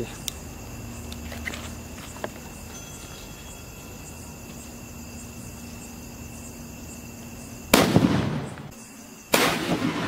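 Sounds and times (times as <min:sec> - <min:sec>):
firecracker bangs: 0:07.7 - 0:08.7, 0:09.3 - 0:10.0.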